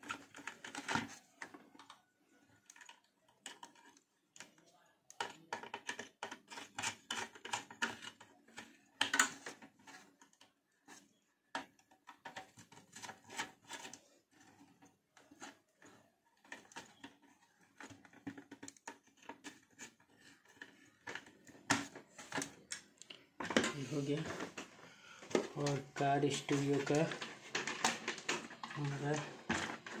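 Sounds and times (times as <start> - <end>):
clicks and taps of wires and screwdriver: 0.0 - 30.0.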